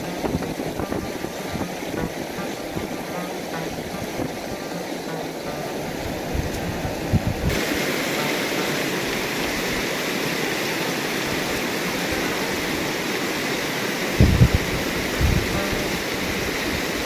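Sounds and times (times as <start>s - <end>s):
dull low thumps: 0.0s - 7.6s
river rushing over stones: 0.0s - 17.0s.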